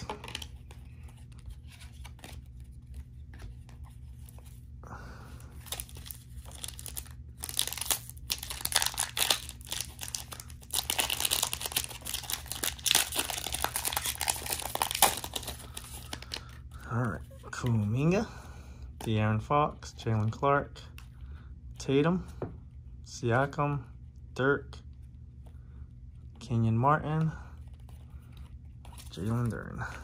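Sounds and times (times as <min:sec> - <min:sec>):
foil wrapper tearing and crinkling: 0:05.7 - 0:16.5.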